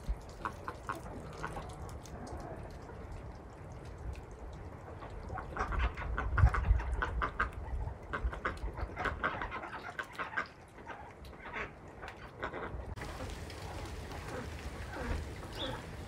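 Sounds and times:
ducks and hens calling: 5.4s - 16.0s.

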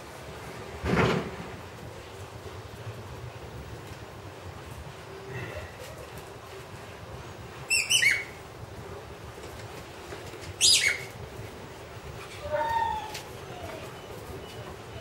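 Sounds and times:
dogs yelping: 7.7s - 8.4s.

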